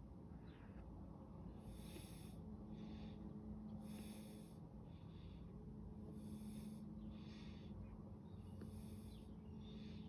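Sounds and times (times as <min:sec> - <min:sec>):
low steady hum: 0:00.0 - 0:10.0
slow breathing: 0:00.4 - 0:10.0.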